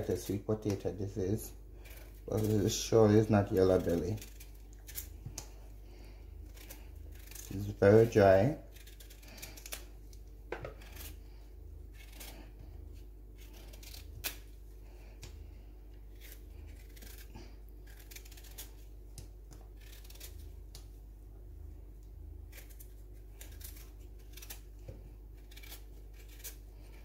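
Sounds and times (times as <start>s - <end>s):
knife scraping vegetable skin: 0.0s - 5.6s, 6.3s - 9.9s, 10.5s - 14.6s, 16.0s - 18.9s, 19.8s - 20.5s, 22.4s - 27.0s
steady low hum: 0.0s - 27.0s.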